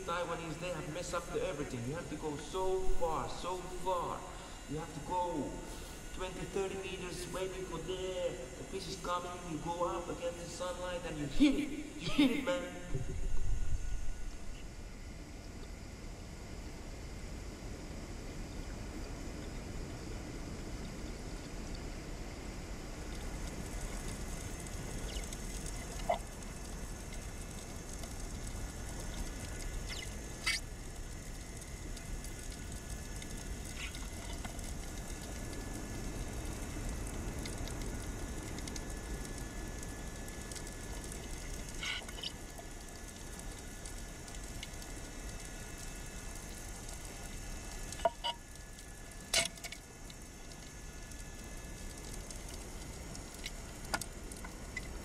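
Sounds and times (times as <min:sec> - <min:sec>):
underwater low hiss: 0:02.2 - 0:10.1.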